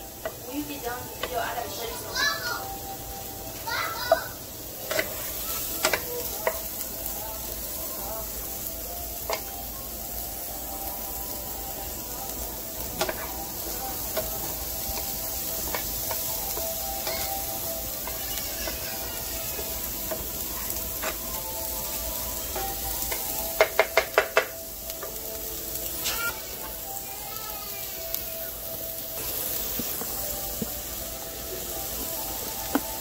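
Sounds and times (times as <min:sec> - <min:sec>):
onions sizzling in oil: 0:00.0 - 0:33.0
spatula clicking against pan: 0:22.5 - 0:25.1.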